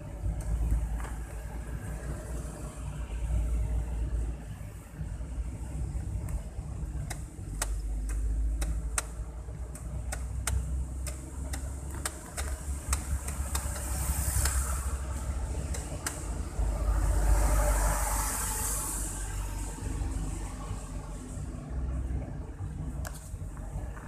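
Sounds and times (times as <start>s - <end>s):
engine and tyres rumbling: 0.0s - 24.0s
sharp clicks: 7.0s - 14.6s, 15.7s - 16.3s.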